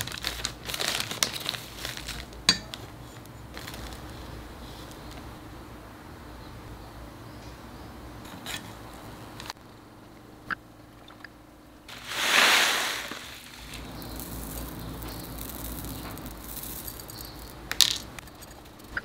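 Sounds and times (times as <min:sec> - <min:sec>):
rustling and handling: 0:00.0 - 0:05.3, 0:11.9 - 0:19.0
potting material pouring: 0:11.9 - 0:18.2.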